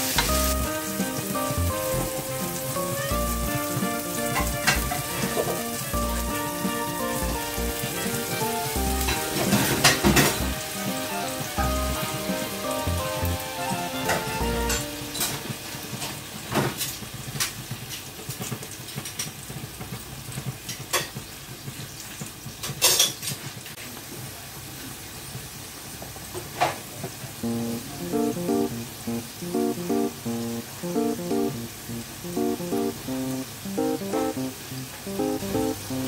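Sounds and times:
background music: 0:00.0 - 0:16.0, 0:27.4 - 0:36.0
food sizzling in oil: 0:00.0 - 0:36.0.

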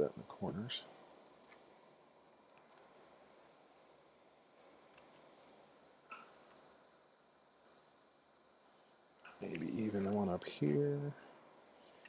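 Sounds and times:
small screws and nuts clicking: 0:04.5 - 0:06.7, 0:08.9 - 0:10.2.

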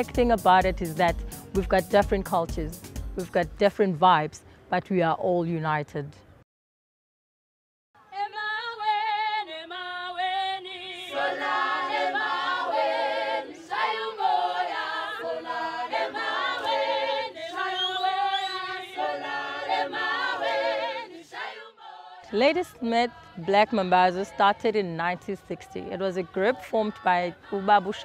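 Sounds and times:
group singing a cappella: 0:08.1 - 0:28.0.

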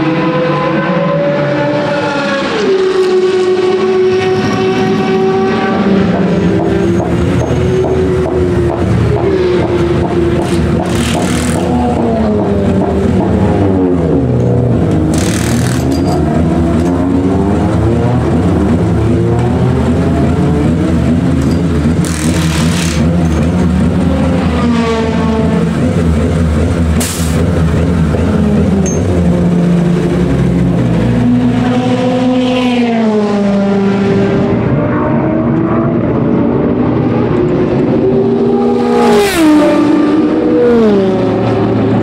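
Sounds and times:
race car engines passing: 0:00.0 - 0:42.0
impact wrench rattling: 0:10.0 - 0:11.9, 0:15.1 - 0:17.0, 0:21.4 - 0:23.7, 0:28.8 - 0:29.1.

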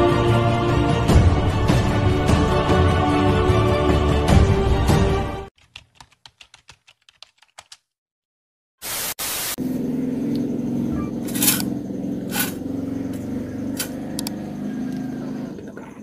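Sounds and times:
steady low hum: 0:09.6 - 0:14.3.

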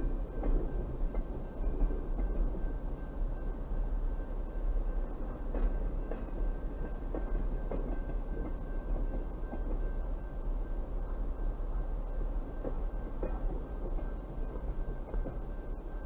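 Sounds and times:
train clicks and knocks: 0:00.0 - 0:16.0
train wheels rumbling on rails: 0:00.0 - 0:16.0.

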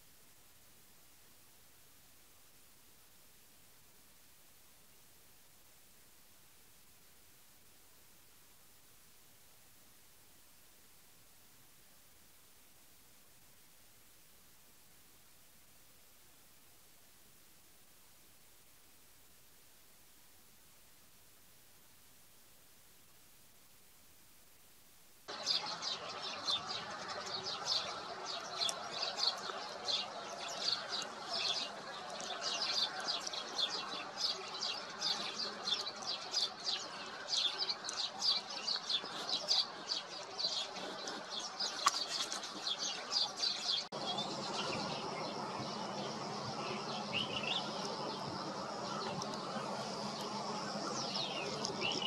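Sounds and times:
wetland birds chirping: 0:25.3 - 0:52.0.

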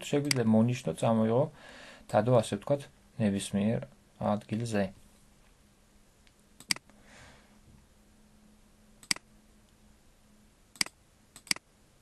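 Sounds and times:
computer mouse clicking: 0:06.6 - 0:06.9, 0:09.0 - 0:09.2, 0:10.8 - 0:11.6.

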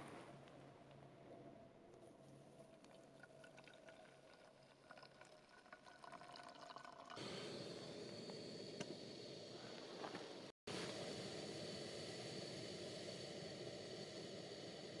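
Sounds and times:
water trickling and dripping: 0:02.6 - 0:07.2
steady hiss: 0:07.2 - 0:15.0.

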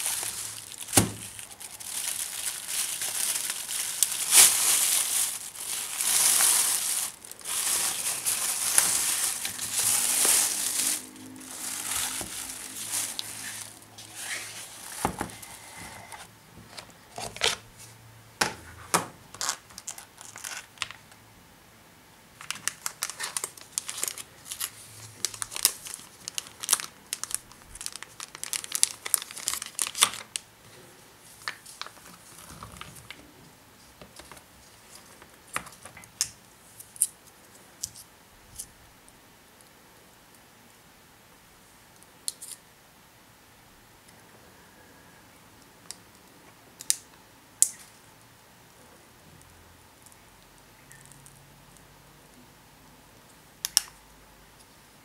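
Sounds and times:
plastic packaging crinkling and tearing: 0:00.0 - 0:17.7, 0:19.3 - 0:21.0, 0:22.4 - 0:30.5, 0:31.3 - 0:33.2.

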